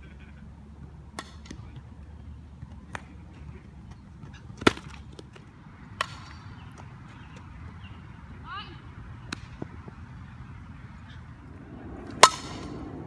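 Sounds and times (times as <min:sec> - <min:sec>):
bat striking ball: 0:01.1 - 0:01.6, 0:04.6 - 0:05.2, 0:06.0 - 0:06.6, 0:09.2 - 0:09.9, 0:11.9 - 0:13.0.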